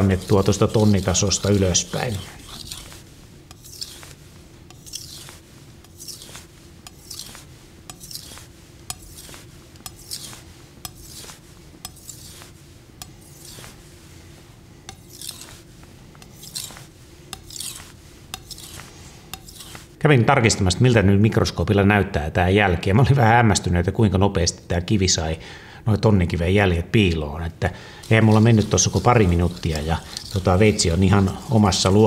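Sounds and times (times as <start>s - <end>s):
knife scraping on whetstone: 0.0s - 14.1s, 14.8s - 20.0s, 28.0s - 32.0s.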